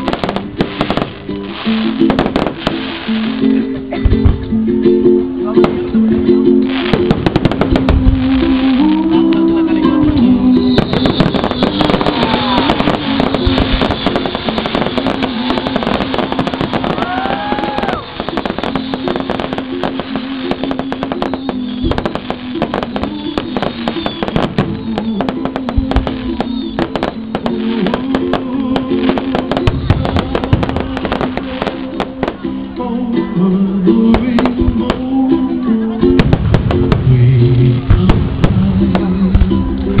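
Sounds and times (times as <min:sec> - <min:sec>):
fireworks crackling and popping: 0:00.0 - 0:04.6, 0:05.2 - 0:32.8, 0:34.0 - 0:40.0
firework whistles: 0:10.6 - 0:28.0.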